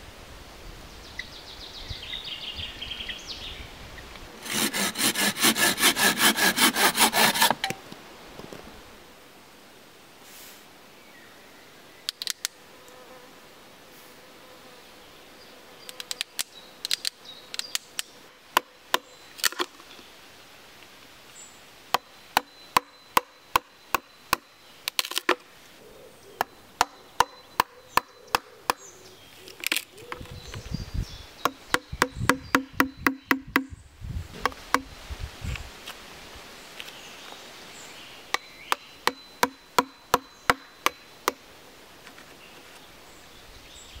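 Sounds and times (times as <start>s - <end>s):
knife hacking into wood: 38.7s - 41.4s.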